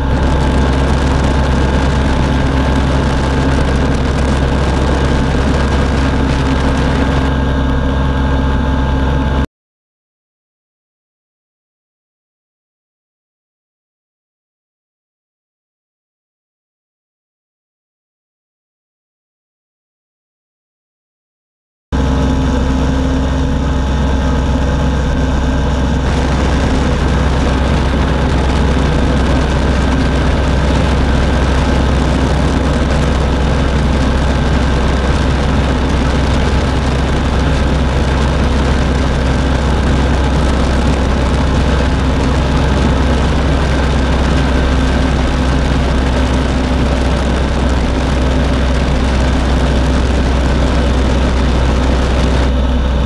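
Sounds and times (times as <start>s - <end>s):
two-stroke engine misfiring: 0.0s - 7.4s, 22.1s - 53.0s
propeller and wind rush: 0.0s - 9.4s, 22.0s - 53.0s.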